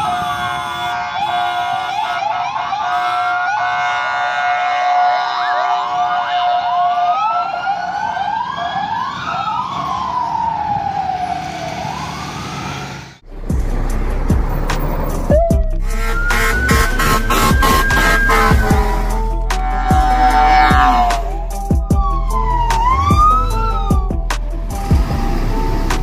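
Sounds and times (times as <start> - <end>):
police sirens wailing and yelping: 0.0 - 13.2, 15.3 - 26.0
music with heavy beat: 13.3 - 25.3
steady tone: 15.3 - 22.6.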